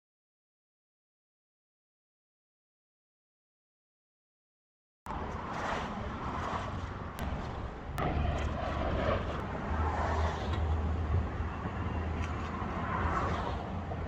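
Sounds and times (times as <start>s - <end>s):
street traffic rumble: 5.1s - 14.0s.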